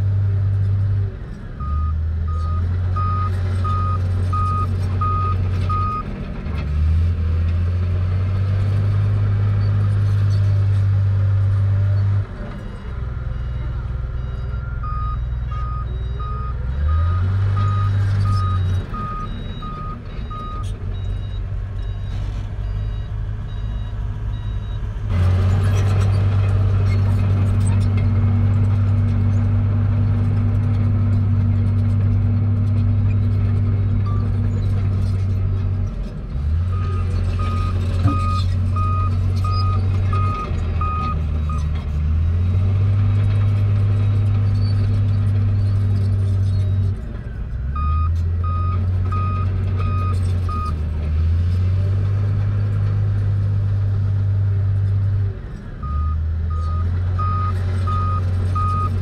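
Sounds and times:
diesel machinery engine running: 0.0s - 59.0s
reversing alarm beeping: 12.7s - 24.8s, 55.8s - 58.9s.

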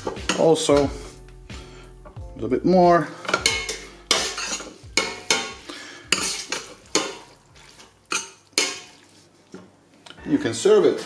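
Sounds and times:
spoon scraping steel pot: 3.3s - 9.2s.

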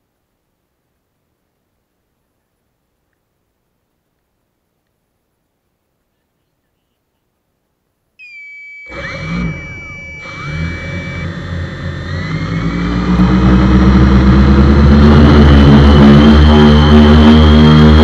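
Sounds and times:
drone motors and propellers spinning: 8.2s - 18.0s
high tone: 8.2s - 18.0s.

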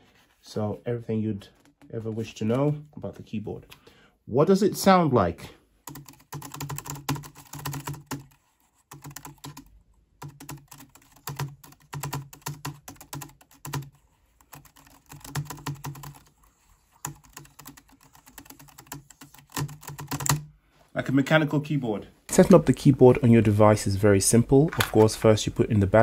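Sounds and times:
keyboard typing clicks: 17.0s - 20.5s.

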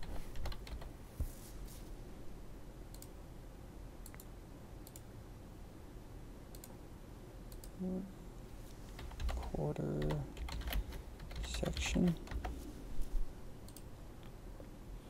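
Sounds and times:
computer mouse clicks: 2.9s - 3.2s, 4.0s - 5.1s, 6.5s - 6.8s, 7.5s - 7.8s, 13.6s - 13.9s
person humming: 7.8s - 8.2s.

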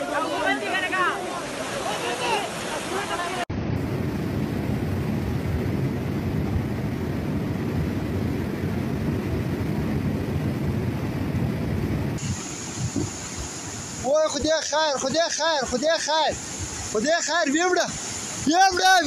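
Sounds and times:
river rushing roar: 0.0s - 19.0s.

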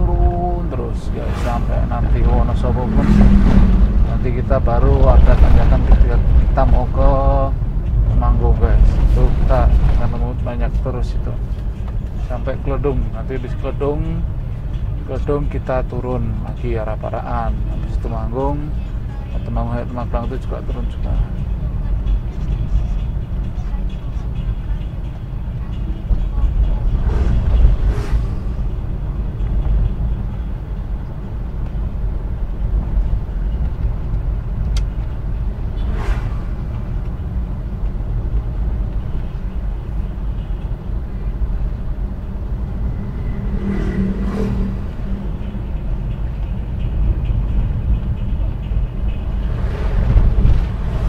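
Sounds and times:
vehicle engine and tyres rumbling: 0.0s - 51.0s.

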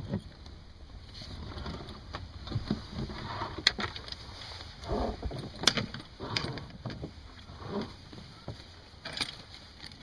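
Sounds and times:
anchor chain clinking: 8.9s - 10.0s.

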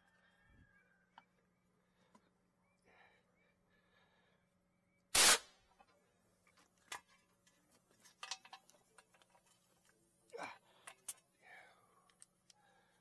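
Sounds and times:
loud air blast: 5.1s - 5.5s.

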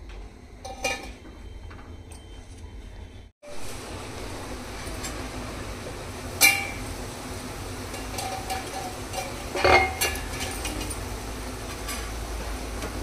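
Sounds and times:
metal lid clinking on pan: 6.4s - 6.8s, 7.9s - 11.0s.

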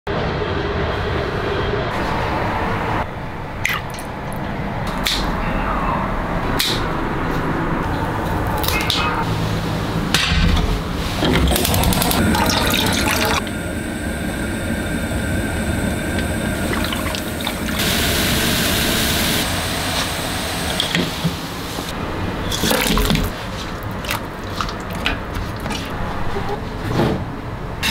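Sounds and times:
shrimp splashing in water: 3.6s - 4.1s
water boiling hard: 11.1s - 26.1s.

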